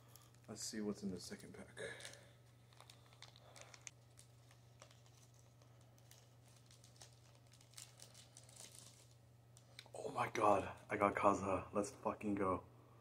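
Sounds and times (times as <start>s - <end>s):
wrapper clicks and rustles: 2.0s - 9.9s.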